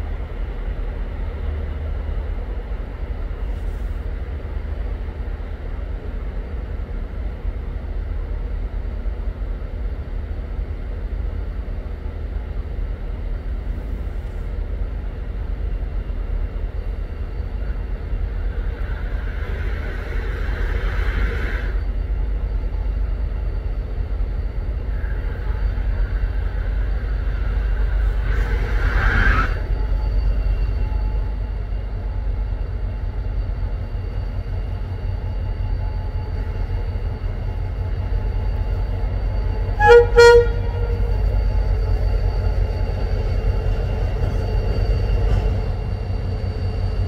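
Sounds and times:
train rumbling: 0:00.0 - 0:47.0
train hissing: 0:13.1 - 0:47.0.

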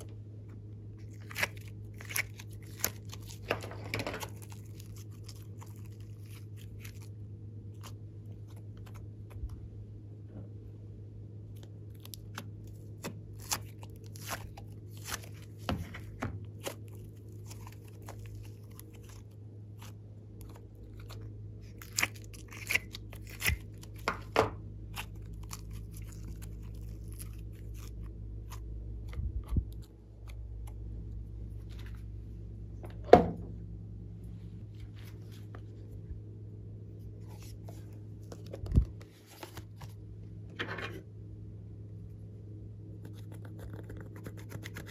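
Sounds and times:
steady low hum: 0:00.0 - 0:44.9
slime crackling and popping: 0:01.0 - 0:09.0, 0:11.5 - 0:15.9, 0:16.5 - 0:24.3, 0:24.9 - 0:28.7.

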